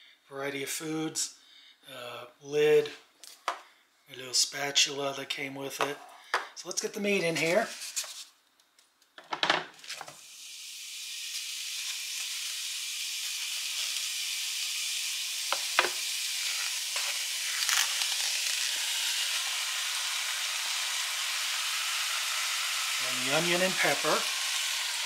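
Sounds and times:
meat sizzling in a pan: 9.8s - 25.0s.

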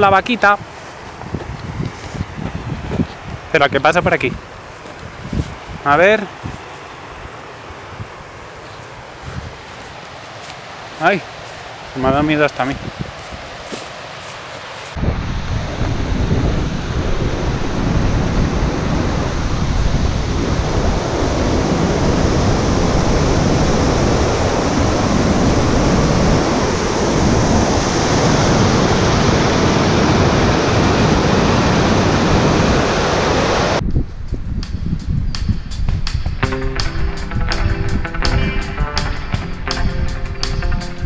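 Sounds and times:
stream rushing over rocks: 5.8s - 15.0s.

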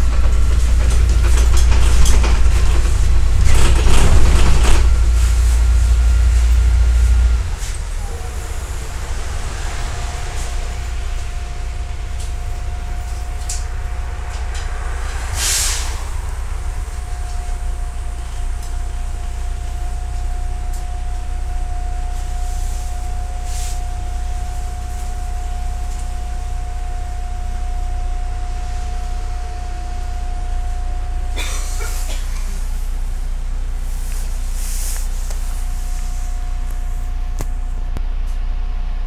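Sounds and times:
bus engine and road rumble: 0.0s - 39.0s
thin steady whine: 4.7s - 39.0s
short hiss: 15.4s - 16.0s.

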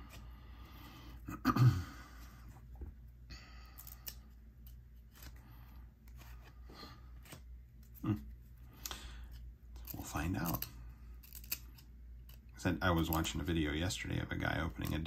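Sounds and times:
cards and packaging rustling: 3.8s - 13.6s.

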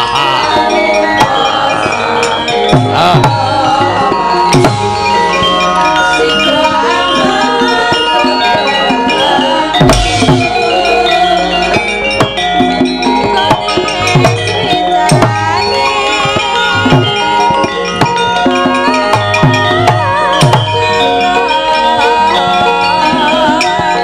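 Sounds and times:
metallophones ringing: 0.0s - 24.0s
hand drum strokes: 9.8s - 12.4s.

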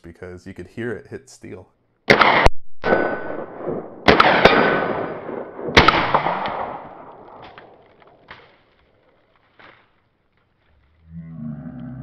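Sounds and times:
suppressed rifle shots with echo: 2.1s - 8.2s
steel target ringing: 2.8s - 7.1s.

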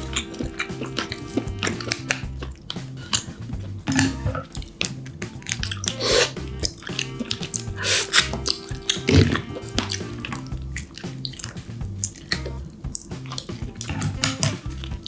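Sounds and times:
quiet background music: 0.0s - 15.0s.

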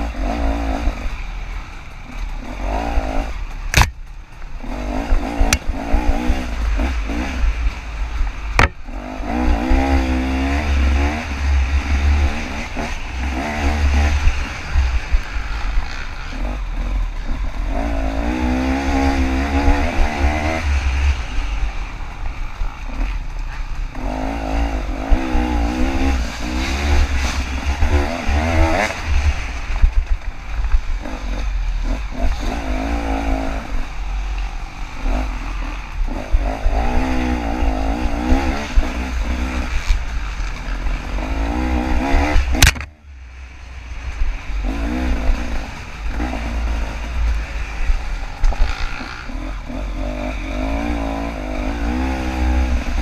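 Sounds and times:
dirt bike engine revving: 0.0s - 1.3s, 2.1s - 4.0s, 4.6s - 42.9s, 43.9s - 53.0s
wind rumble on microphone: 0.0s - 53.0s
sharp knock: 8.6s - 8.8s.

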